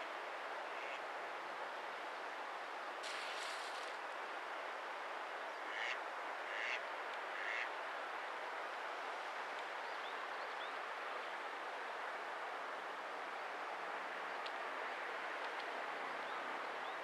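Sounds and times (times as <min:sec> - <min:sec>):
steady hiss: 0:00.0 - 0:16.9.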